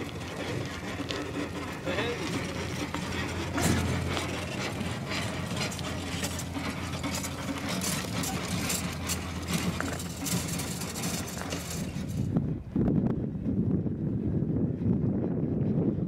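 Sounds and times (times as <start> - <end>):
tyres rolling on dirt: 0.0 - 12.5
bike and trailer rattling: 0.0 - 12.8.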